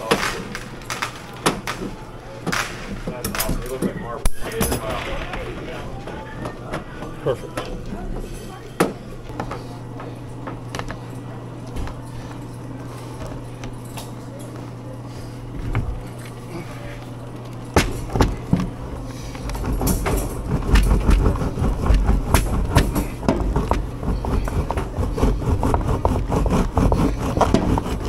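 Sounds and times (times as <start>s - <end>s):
wooden board rumbling and clattering: 19.6s - 28.0s.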